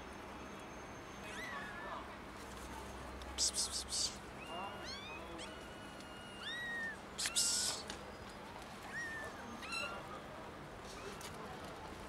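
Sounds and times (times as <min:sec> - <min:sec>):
kittens meowing: 0:01.2 - 0:02.0, 0:03.6 - 0:07.9, 0:08.8 - 0:10.0.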